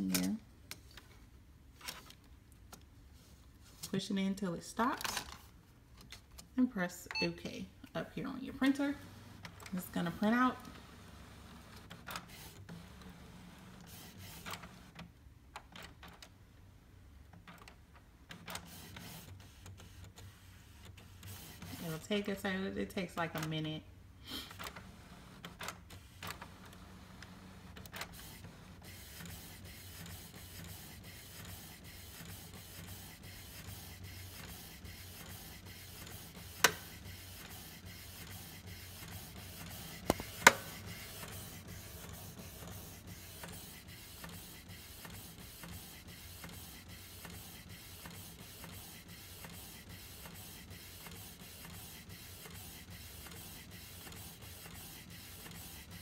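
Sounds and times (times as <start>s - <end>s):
printer whirring and ticking: 24.6s - 56.0s
printer sharp clicks: 40.0s - 41.0s.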